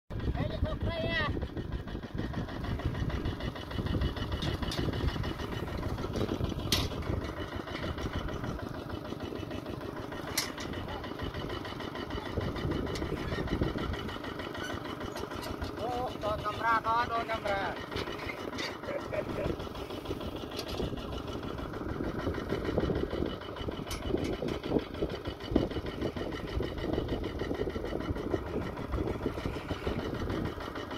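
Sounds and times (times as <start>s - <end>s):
engine idling: 0.1s - 30.9s.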